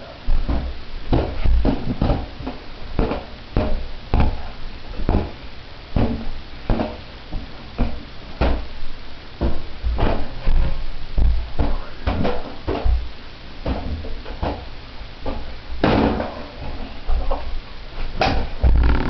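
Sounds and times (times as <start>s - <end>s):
balloon hollow thumps: 18.6s - 19.0s.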